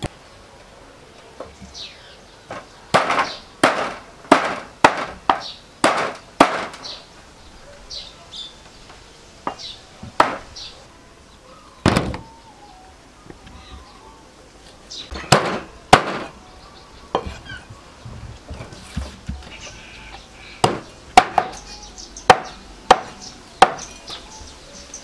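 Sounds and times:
cleaver chopping on wooden board: 0:03.0 - 0:06.8, 0:20.6 - 0:21.6, 0:22.3 - 0:23.9.

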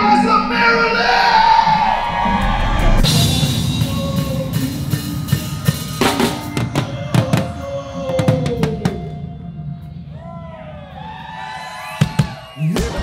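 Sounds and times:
drum kit hits: 0:02.4 - 0:09.2, 0:11.8 - 0:13.0
live band playing: 0:03.0 - 0:10.0.

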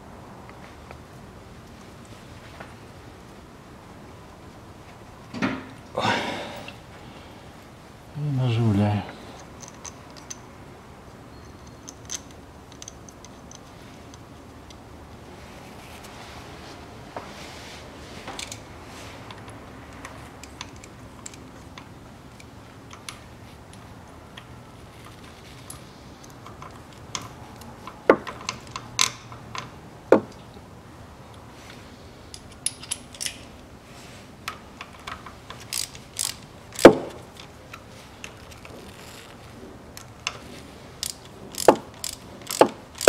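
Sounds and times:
hand ratchet clicking: 0:35.0 - 0:37.5, 0:41.0 - 0:43.0.

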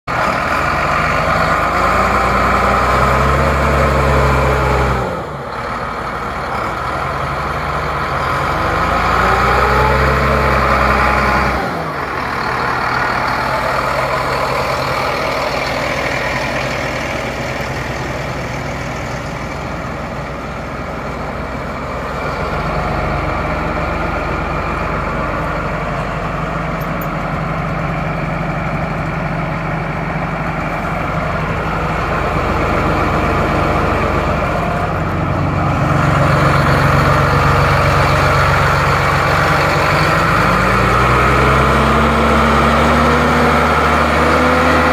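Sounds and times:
tractor diesel engine revving and idling: 0:00.0 - 0:44.9.

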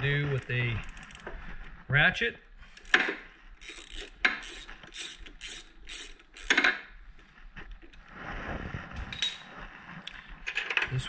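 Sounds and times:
socket ratchet clicking: 0:02.8 - 0:06.8.

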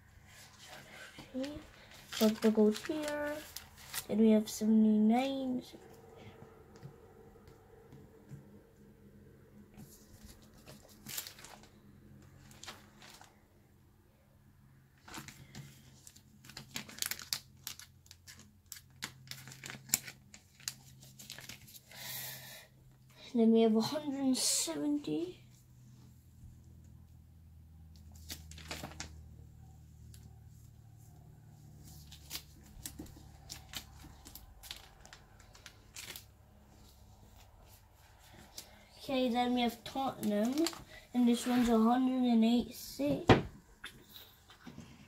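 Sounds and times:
plastic binder pages crackling: 0:00.4 - 0:04.4, 0:09.8 - 0:13.4, 0:15.0 - 0:21.9, 0:28.0 - 0:29.5, 0:31.6 - 0:41.9
plastic sleeves crinkling and clicking: 0:01.2 - 0:04.1, 0:10.2 - 0:13.4, 0:15.0 - 0:21.9, 0:28.0 - 0:29.3, 0:31.8 - 0:36.4, 0:39.6 - 0:41.8.

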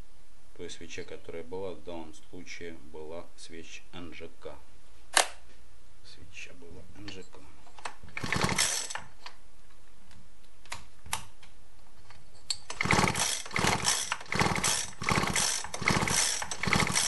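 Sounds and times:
recoil starter pulls: 0:08.1 - 0:09.1, 0:12.6 - 0:17.0
engine turning over without firing: 0:08.2 - 0:09.1, 0:12.7 - 0:17.0
starter ratchet rattling: 0:08.2 - 0:09.1, 0:12.7 - 0:17.0.

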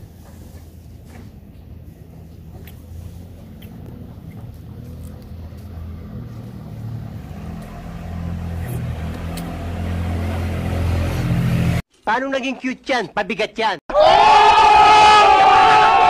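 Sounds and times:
construction machine engine hum: 0:00.1 - 0:11.8.

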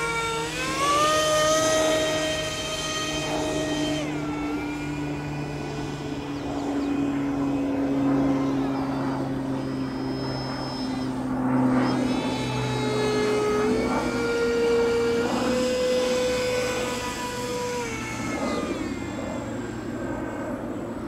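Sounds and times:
model jet engine whine: 0:00.0 - 0:21.0.

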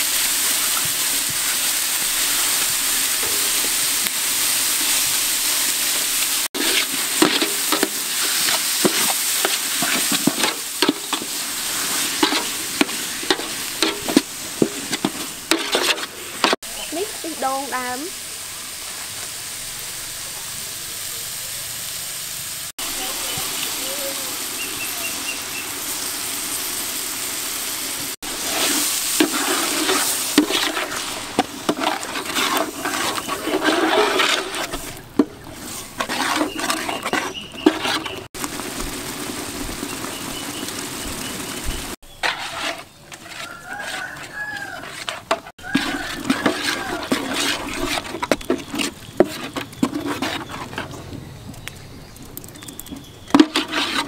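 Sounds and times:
metal ladle scraping a pot: 0:06.6 - 0:16.6, 0:28.3 - 0:38.3, 0:42.1 - 0:51.2, 0:52.8 - 0:54.0.

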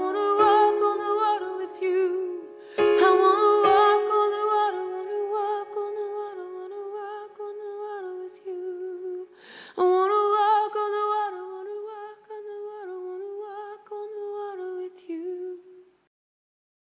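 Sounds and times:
breath: 0:02.6 - 0:02.9, 0:09.3 - 0:09.8.

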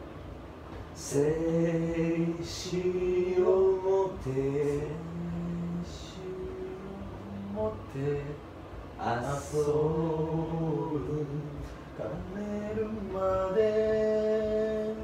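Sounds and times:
man singing long held notes: 0:01.0 - 0:08.4, 0:09.0 - 0:15.0.

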